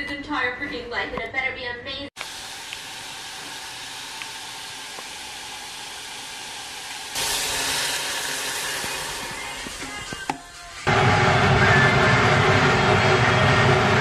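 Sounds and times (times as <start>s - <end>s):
mushrooms sizzling in frying pan: 2.2s - 9.6s
water hissing in hot pan: 2.2s - 10.3s.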